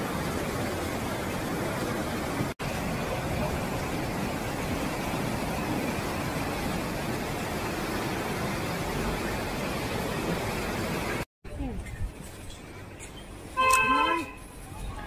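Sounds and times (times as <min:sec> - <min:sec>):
river rushing over rocks: 0:00.0 - 0:11.2.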